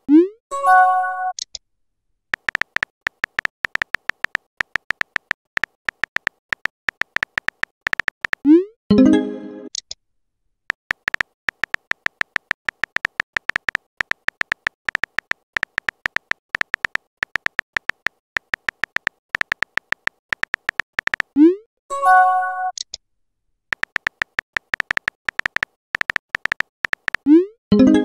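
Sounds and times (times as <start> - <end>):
on-screen keyboard typing clicks: 2.3 - 8.7, 10.7 - 21.6, 23.7 - 28.0.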